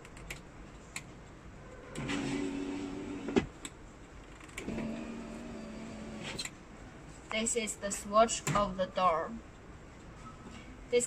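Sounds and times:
power window motor running: 0:02.0 - 0:03.5, 0:04.6 - 0:06.4.

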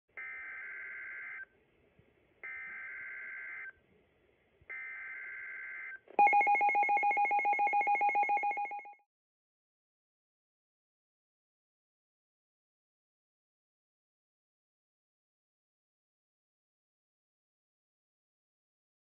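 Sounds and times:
rapid alarm beeping: 0:04.7 - 0:09.0.

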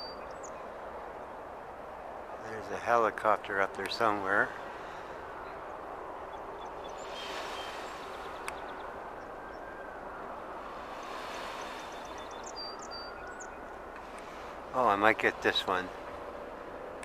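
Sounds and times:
faint bird chirps: 0:05.4 - 0:10.0, 0:10.9 - 0:14.0.

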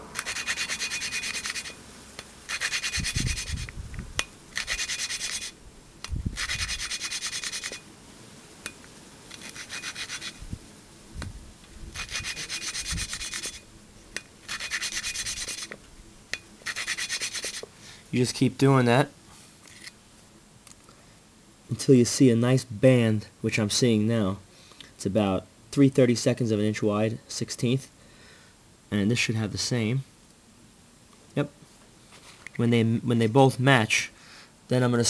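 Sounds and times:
valve grinding rasping strokes: 0:00.0 - 0:01.8, 0:02.5 - 0:05.6, 0:06.3 - 0:07.9, 0:09.3 - 0:10.6, 0:11.9 - 0:13.7, 0:14.4 - 0:15.8, 0:16.6 - 0:17.7.

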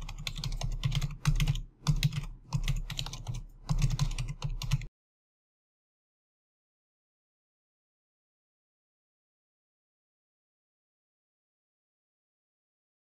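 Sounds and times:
computer keyboard typing: 0:00.0 - 0:04.9.

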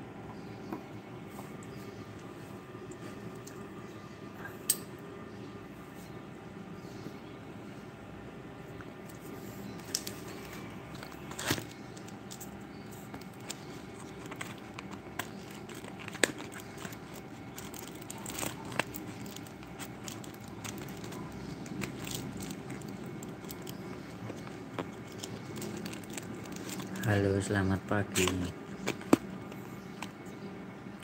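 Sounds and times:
low background hum: 0:00.0 - 0:31.0
small clicks and crackles: 0:09.8 - 0:27.2.

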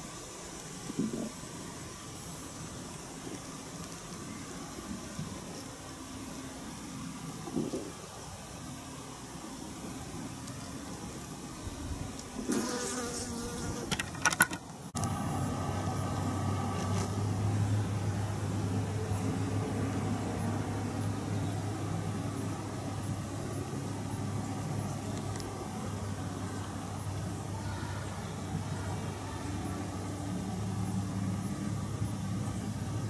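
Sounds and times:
outdoor noise: 0:00.0 - 0:33.0
insect buzzing: 0:05.4 - 0:14.6
steady low hum: 0:14.6 - 0:33.0.

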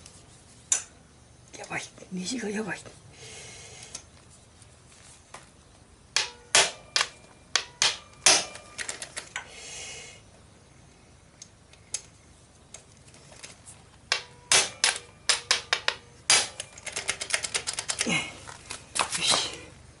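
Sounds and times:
hammer striking metal: 0:06.2 - 0:08.7.

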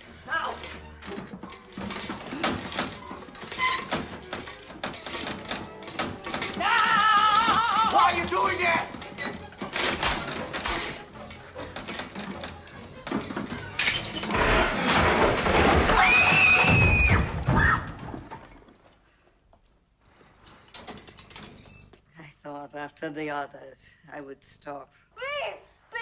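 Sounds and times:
crashing and breaking: 0:12.0 - 0:18.8
shrill cry: 0:15.9 - 0:17.9.

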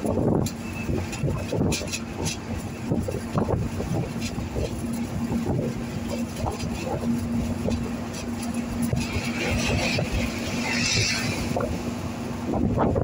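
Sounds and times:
road rumble: 0:00.0 - 0:13.0
truck passing: 0:00.0 - 0:13.0
vehicle engine drone: 0:00.0 - 0:13.0
wind: 0:00.0 - 0:13.0.

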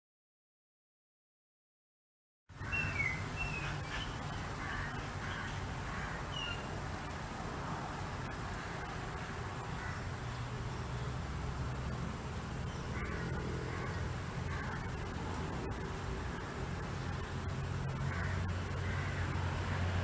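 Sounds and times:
steady low hum: 0:02.5 - 0:20.0.

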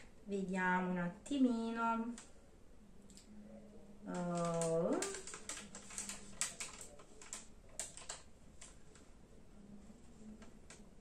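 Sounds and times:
paper rustling and crinkling: 0:04.2 - 0:09.1.

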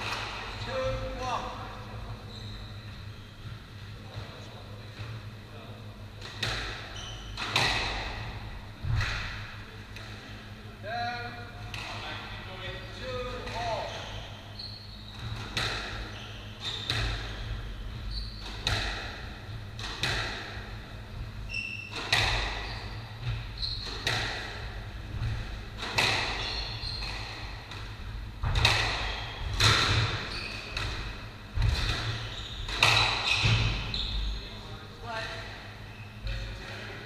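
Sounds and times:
shoes squeaking on wooden floor: 0:02.1 - 0:04.4, 0:21.4 - 0:24.1, 0:26.3 - 0:27.6, 0:29.0 - 0:30.9, 0:31.6 - 0:34.6
squash ball cracks: 0:19.8 - 0:20.6, 0:24.0 - 0:26.4.

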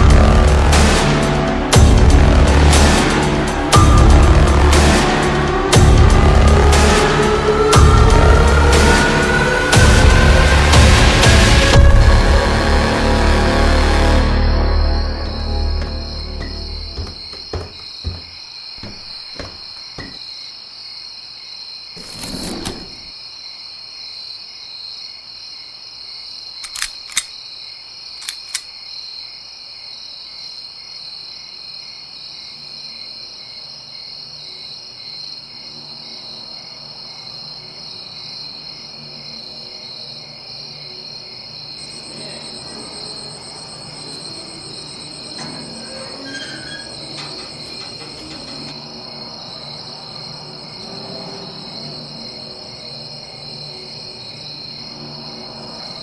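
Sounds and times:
crickets chirping: 0:13.6 - 0:56.0
footsteps on stairs: 0:15.8 - 0:20.2
sharp clicks: 0:26.6 - 0:27.4, 0:28.2 - 0:28.7.

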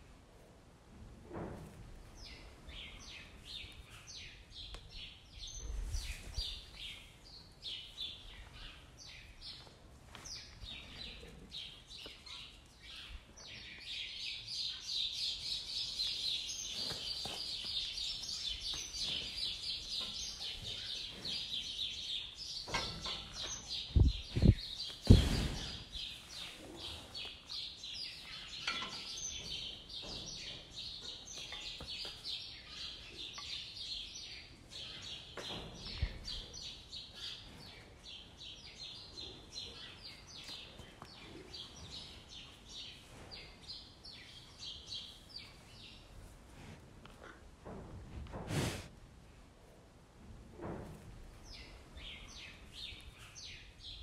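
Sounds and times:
birds chirping and twittering: 0:02.1 - 0:46.2, 0:51.4 - 0:54.0
dull low thumps: 0:23.9 - 0:25.8.

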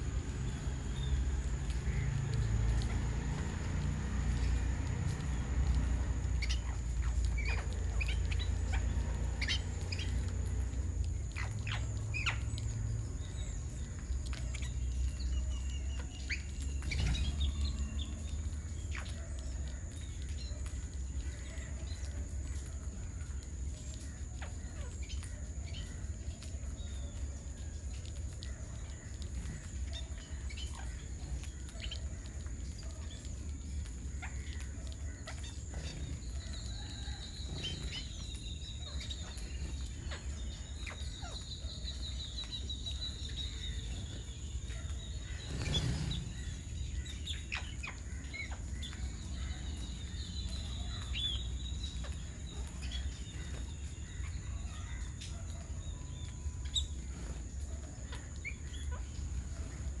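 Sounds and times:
birds chirping and calling: 0:00.0 - 1:00.0.

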